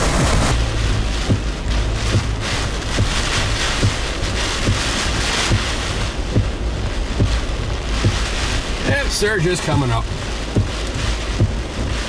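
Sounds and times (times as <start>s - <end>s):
low thump: 0.0s - 6.6s
heavy rain beating on a vehicle: 0.0s - 12.0s
strong wind on a vehicle: 0.0s - 12.0s.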